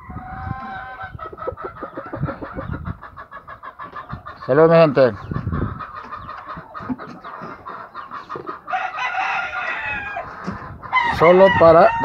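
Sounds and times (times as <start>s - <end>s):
rooster crowing: 8.7s - 10.3s, 10.9s - 12.0s.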